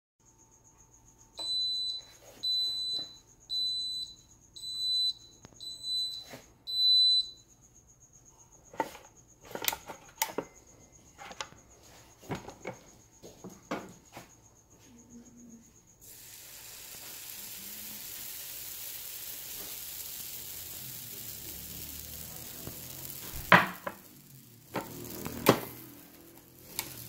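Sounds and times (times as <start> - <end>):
high beeps: 1.4 - 7.4.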